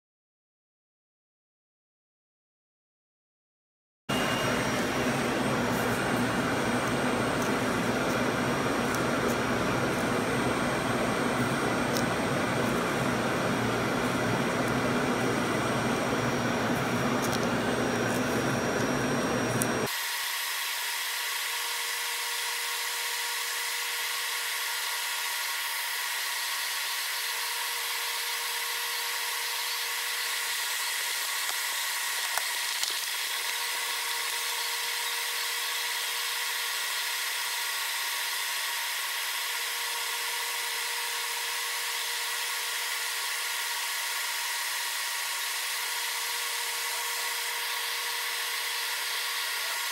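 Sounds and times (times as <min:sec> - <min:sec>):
low machine tone: 0:04.1 - 0:19.9
cnc machine whine and hiss: 0:04.1 - 0:49.9.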